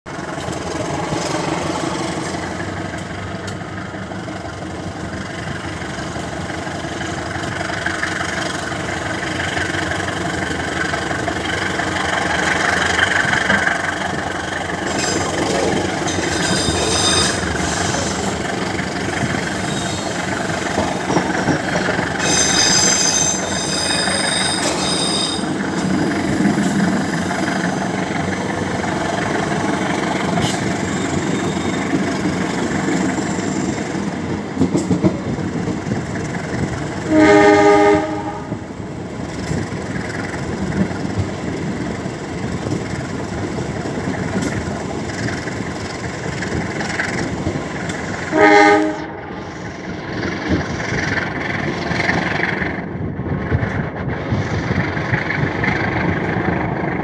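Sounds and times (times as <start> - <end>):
diesel locomotive engine running hard: 0.1 - 57.0.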